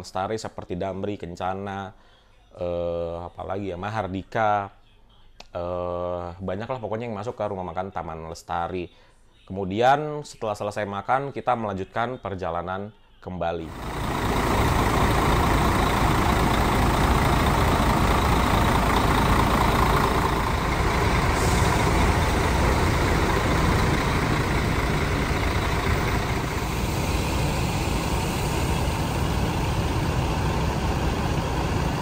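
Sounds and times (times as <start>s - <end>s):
diesel bus engines idling: 13.7s - 32.0s.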